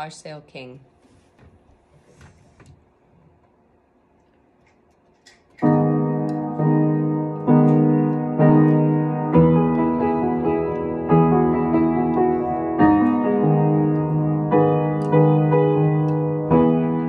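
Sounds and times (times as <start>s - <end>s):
piano chords: 5.6s - 17.0s.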